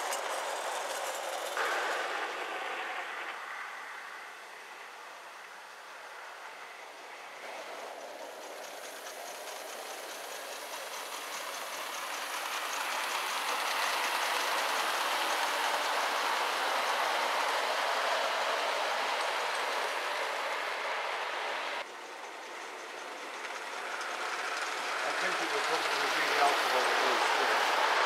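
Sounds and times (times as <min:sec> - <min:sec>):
model train wheels on rail: 0:00.0 - 0:28.0
faint rapid ticking: 0:07.4 - 0:28.0.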